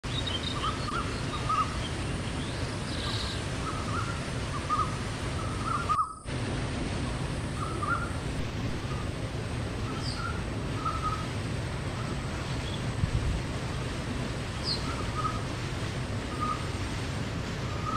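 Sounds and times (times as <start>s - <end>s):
waterfall rushing: 0.0s - 17.9s
bird chirping: 0.1s - 6.2s, 9.8s - 11.3s.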